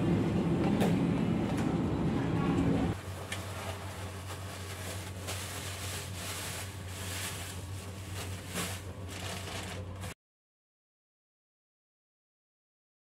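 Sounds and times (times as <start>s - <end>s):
steady low hum: 0.0s - 10.1s
plastic bag rustling: 3.0s - 10.2s.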